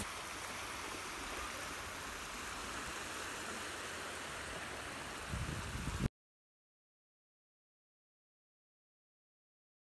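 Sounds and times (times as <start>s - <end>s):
waves washing onto beach: 0.0s - 6.1s.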